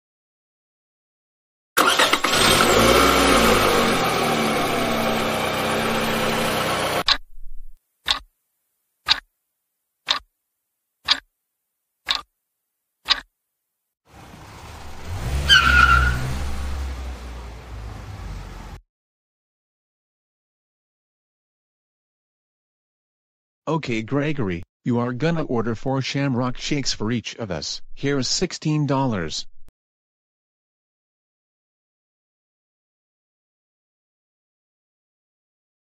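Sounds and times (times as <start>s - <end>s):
car engine starting and driving off: 1.8s - 7.2s, 14.1s - 18.8s
sharp ticks: 7.0s - 7.3s, 8.0s - 8.3s, 9.1s - 9.3s, 10.1s - 10.3s, 11.1s - 11.3s, 12.1s - 12.3s, 13.1s - 13.3s
car pulling in with squeal: 14.4s - 17.4s.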